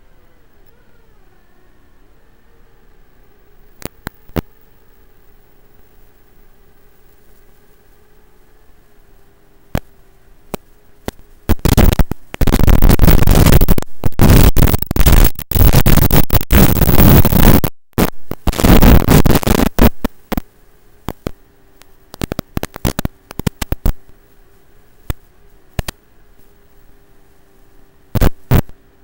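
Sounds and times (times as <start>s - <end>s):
faint hum: 0.0s - 29.0s
loud hissing static: 0.0s - 29.0s
sharp crackling clicks: 3.7s - 4.5s, 9.7s - 24.2s, 25.0s - 26.5s, 28.1s - 28.8s.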